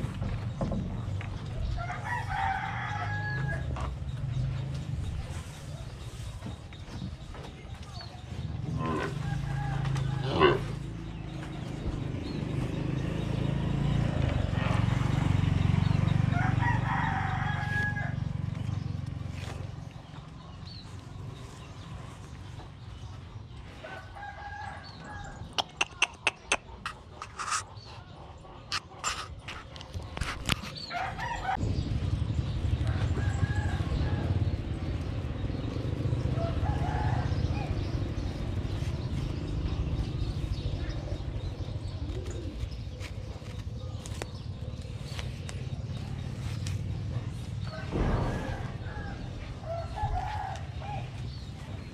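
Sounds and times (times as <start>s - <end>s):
rooster crowing: 1.8s - 3.7s, 9.1s - 10.5s, 16.3s - 18.3s, 23.9s - 25.4s, 36.4s - 37.8s, 47.7s - 51.1s
low rumble: 31.4s - 42.0s, 44.8s - 51.9s.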